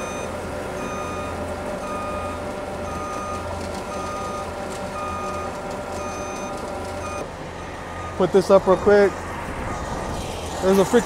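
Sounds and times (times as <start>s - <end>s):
back-up alarm beeping: 0.0s - 8.3s
diesel truck engine running: 0.0s - 11.0s.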